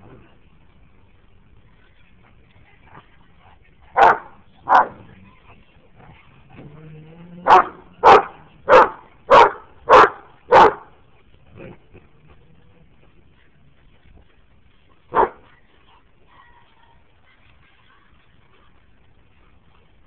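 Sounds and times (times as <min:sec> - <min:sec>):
big dogs barking: 0:03.9 - 0:05.1, 0:07.4 - 0:11.0, 0:15.1 - 0:15.5
dog growling: 0:11.5 - 0:12.8.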